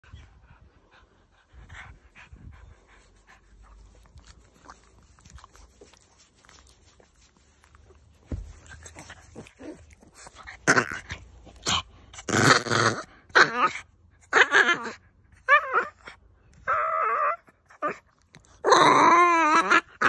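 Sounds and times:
dog panting: 0.0 - 12.1.

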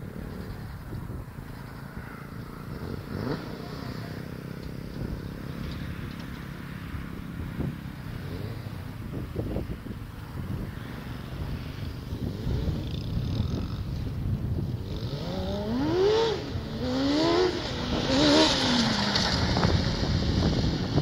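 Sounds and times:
go-kart engine revving: 14.8 - 21.0.

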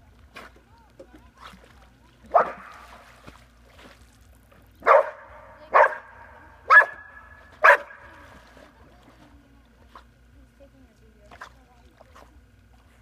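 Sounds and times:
dog barking: 2.3 - 2.7, 4.8 - 8.0.

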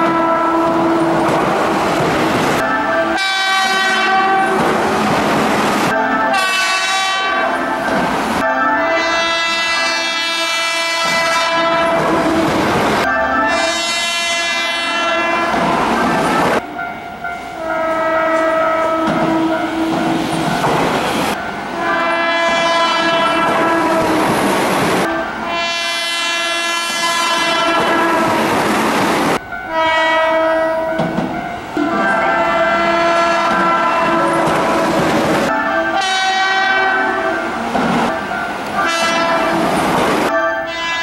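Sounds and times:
train horn blasts: 0.0 - 1.9, 2.6 - 4.9, 6.3 - 7.6, 8.8 - 12.8, 13.5 - 16.0, 17.6 - 20.2, 21.8 - 24.4, 25.0 - 28.5, 29.6 - 31.2, 31.8 - 37.7, 38.8 - 41.0
train running noise: 0.0 - 41.0
train wheel clatter: 3.5 - 6.8, 18.3 - 21.4, 31.0 - 31.5, 33.4 - 35.6.

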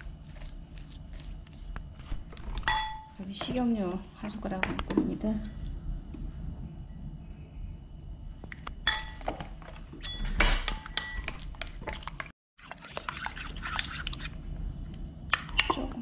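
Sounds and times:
wet stirring of batter: 0.0 - 2.3, 10.6 - 14.6
spoon clinking in ceramic bowl: 2.7 - 3.2, 8.8 - 9.3, 10.0 - 11.4.

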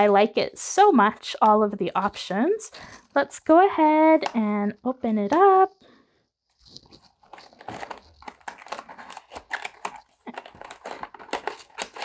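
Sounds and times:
cardboard packaging rustling: 6.5 - 12.0.

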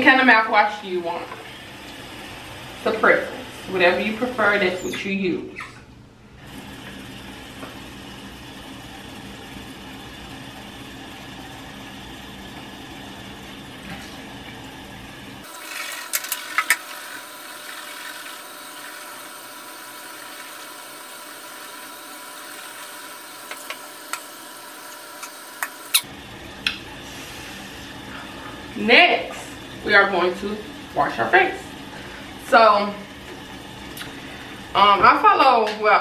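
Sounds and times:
water running in sink: 6.5 - 26.8.

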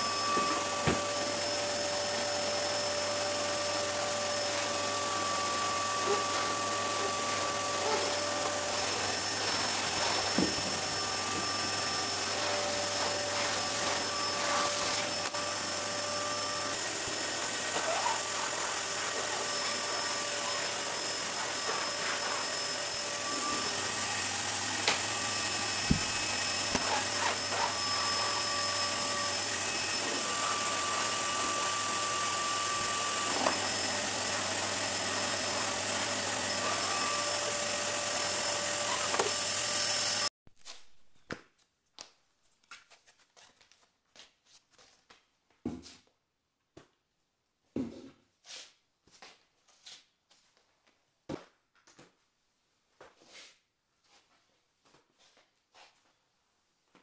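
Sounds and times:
vacuum cleaner running: 0.0 - 40.3.

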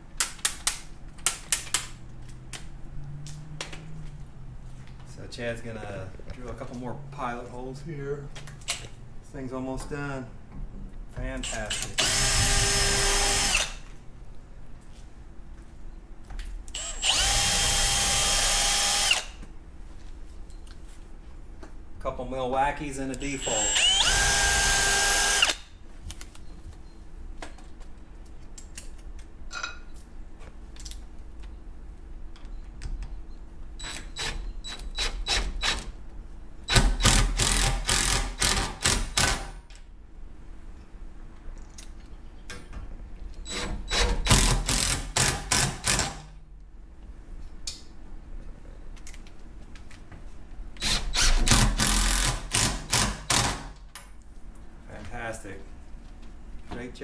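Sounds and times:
impact driver hammering bolts: 36.7 - 39.6, 43.5 - 46.2, 50.8 - 53.8.

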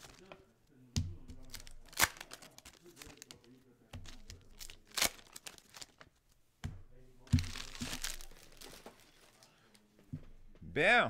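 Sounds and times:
foil wrappers crinkling: 0.0 - 0.3, 1.4 - 6.2, 7.3 - 9.8.

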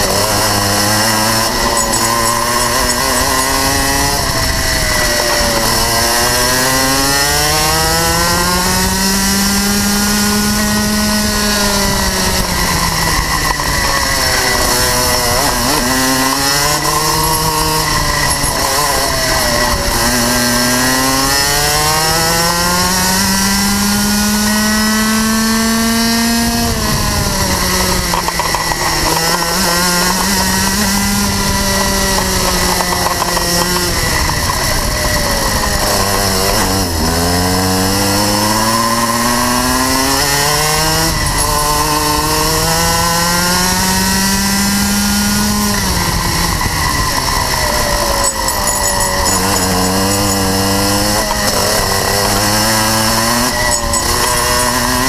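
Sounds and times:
kart engine at full throttle: 0.0 - 55.0.

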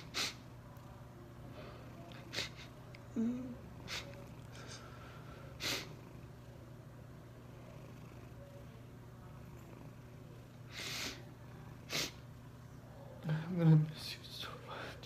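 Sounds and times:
person sniffing while crying: 0.0 - 0.4, 2.2 - 2.8, 3.8 - 6.0, 10.7 - 11.2, 11.9 - 12.2.

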